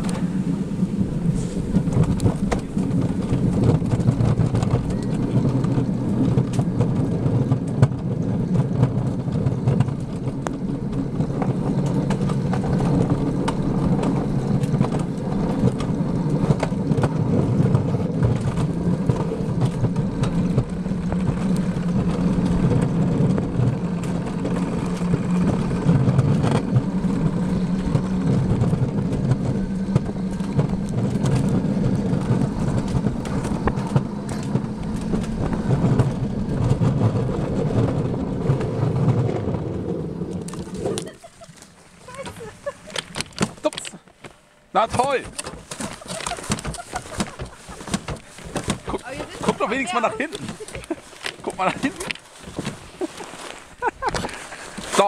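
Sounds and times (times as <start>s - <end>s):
coaster wheels rumbling on rails: 0.0s - 55.0s.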